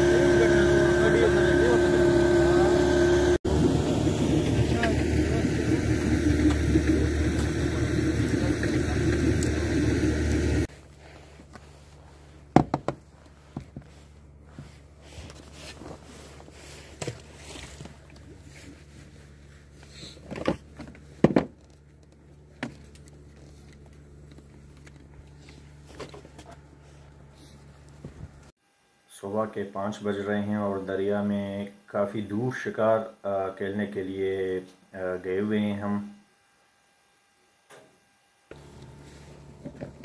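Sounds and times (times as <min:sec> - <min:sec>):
outboard motor running: 0:00.0 - 0:10.7, 0:38.5 - 0:40.0.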